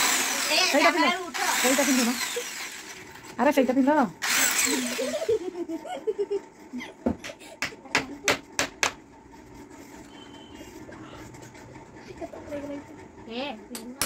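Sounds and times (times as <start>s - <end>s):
hammer knocking on tiled wall: 7.0s - 9.0s.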